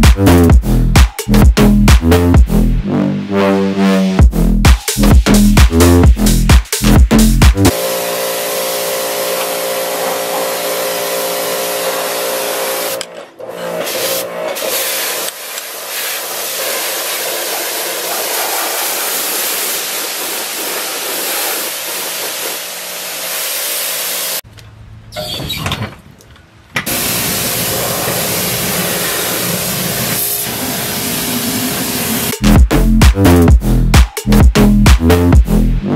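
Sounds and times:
pressure washer hum: 7.2s - 24.4s, 26.8s - 32.4s
pressure washer water spray hissing: 7.7s - 13.0s, 13.8s - 24.4s, 26.9s - 32.4s.

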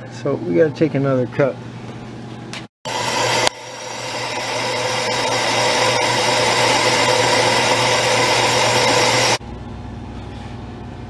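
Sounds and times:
lathe machining metal: 2.9s - 9.4s.

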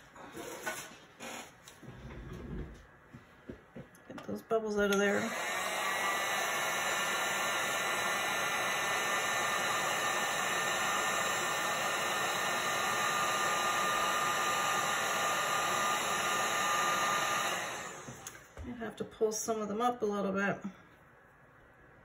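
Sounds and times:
heat gun blowing air: 5.0s - 18.5s.

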